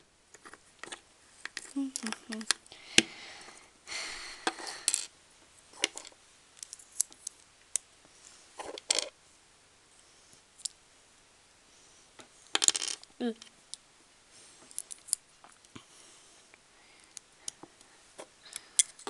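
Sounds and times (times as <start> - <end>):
plastic bricks clicking: 0.3 - 2.7
pieces rattling: 8.6 - 9.1, 12.5 - 13.1.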